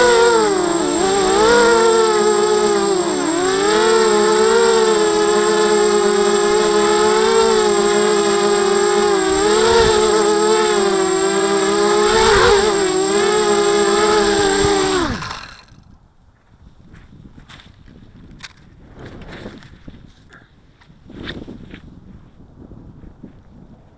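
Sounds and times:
quadcopter motors whining: 0.0s - 15.9s.

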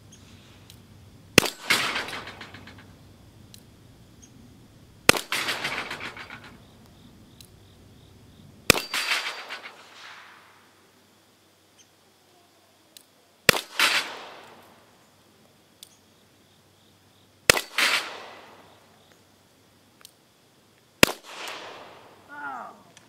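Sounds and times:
bullet clanging on steel plate: 1.4s - 2.9s, 8.7s - 9.8s.

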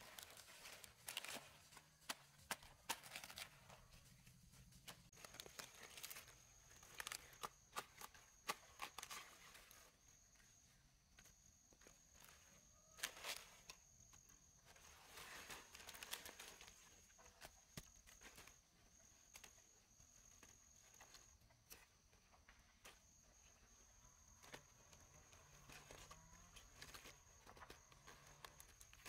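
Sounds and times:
cabbage leaves snapping and rustling: 5.1s - 9.7s.

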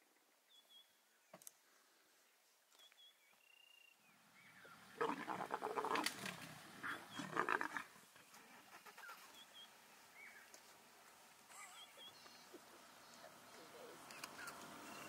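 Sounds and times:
birds chirping faintly: 0.0s - 15.0s
leopard growling: 4.9s - 8.0s.

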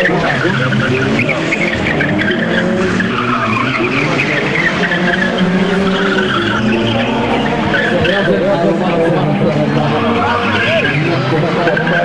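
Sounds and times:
car engine under load: 0.0s - 12.0s
tyres squealing: 0.0s - 12.0s.

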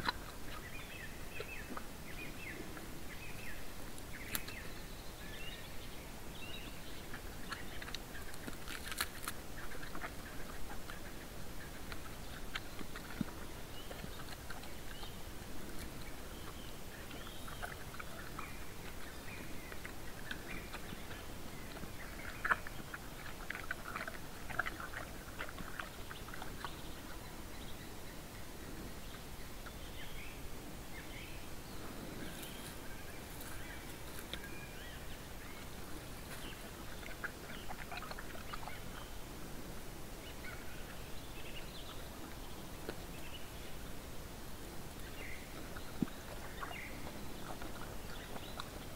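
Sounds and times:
bear feeding clicks and rustles: 7.1s - 27.2s, 31.9s - 39.0s.

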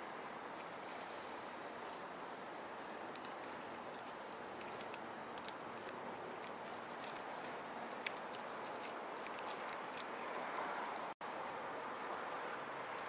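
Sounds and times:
cats crunching dry kibble: 3.0s - 10.1s.

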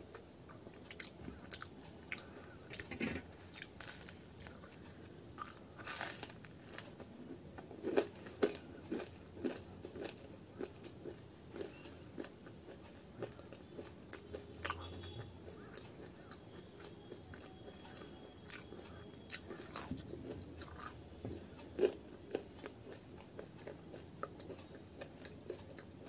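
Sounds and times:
person biting and chewing: 3.4s - 4.8s, 5.4s - 6.9s, 18.5s - 18.7s, 19.3s - 25.9s.

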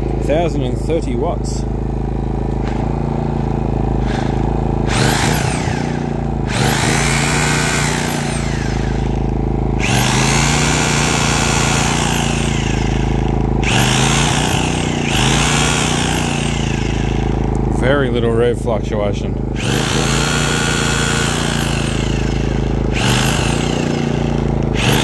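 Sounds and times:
generator engine running: 0.0s - 25.0s
hammer drill whining: 2.5s - 17.9s, 19.5s - 25.0s.

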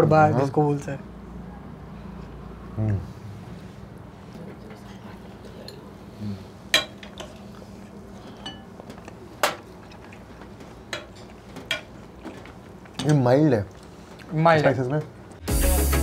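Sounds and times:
cutlery and dishes clinking: 8.2s - 13.3s.

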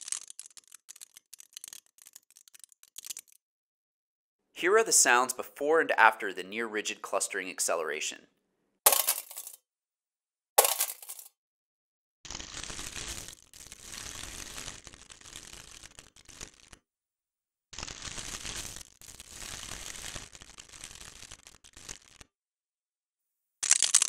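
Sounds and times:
plastic bag crinkling: 0.0s - 3.4s, 10.6s - 11.3s, 23.6s - 24.0s.

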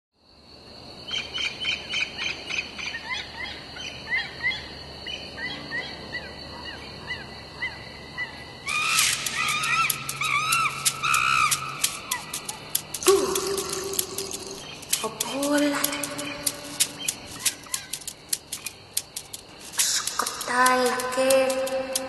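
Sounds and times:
animal chirps and whistles: 8.7s - 14.7s
sharp clicks: 8.7s - 22.0s.

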